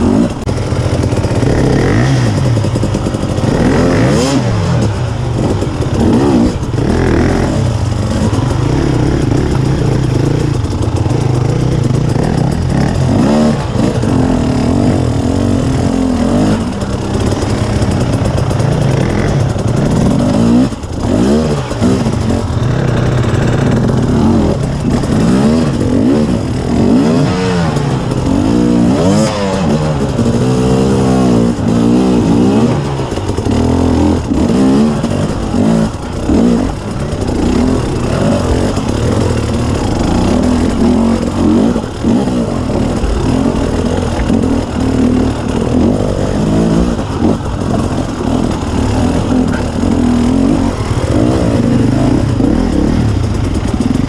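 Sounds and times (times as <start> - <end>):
two-stroke motorcycle revving: 0.0 - 54.0.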